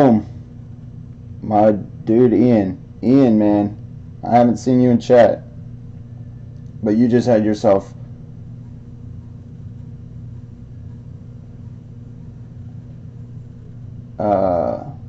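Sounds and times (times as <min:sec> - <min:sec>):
man speaking: 0:00.0 - 0:00.3, 0:01.4 - 0:05.5, 0:06.8 - 0:08.0, 0:14.2 - 0:15.0
low room hum: 0:00.0 - 0:15.0.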